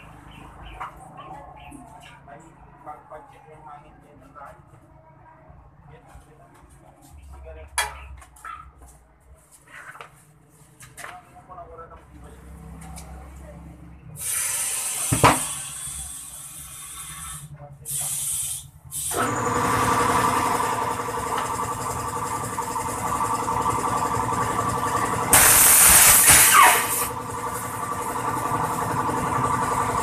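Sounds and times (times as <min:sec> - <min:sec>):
air hose hissing blasts: 0:14.2 - 0:19.2, 0:25.3 - 0:27.1
air compressor humming: 0:14.2 - 0:30.0.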